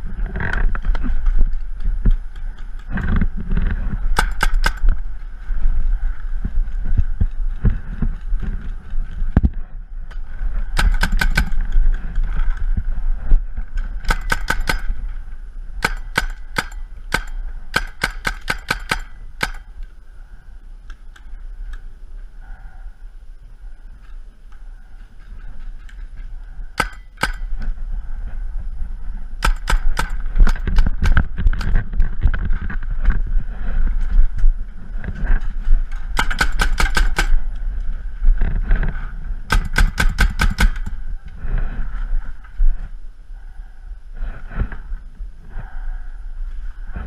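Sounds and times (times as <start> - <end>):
low rumble: 0.0 - 47.0
paintball markers firing: 4.1 - 5.0, 10.7 - 12.0, 14.0 - 15.0, 15.8 - 19.7, 26.8 - 27.7, 29.4 - 31.8, 36.1 - 37.4, 39.5 - 41.0.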